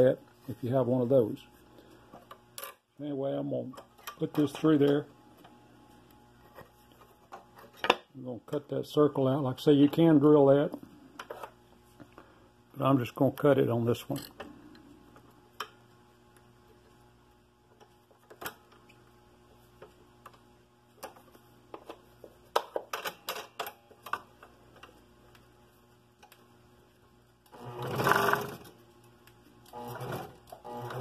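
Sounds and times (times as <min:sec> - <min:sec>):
scroll saw running: 0:27.5 - 0:28.6, 0:29.7 - 0:31.0.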